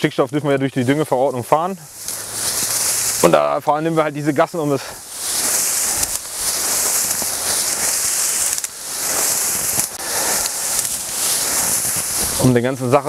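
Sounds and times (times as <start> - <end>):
wheat stalks rustling and crackling: 0.0 - 13.0.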